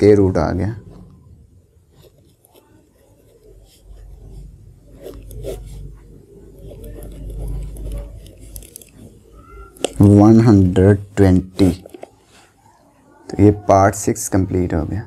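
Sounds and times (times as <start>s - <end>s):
pen scratching on paper: 1.8s - 11.0s.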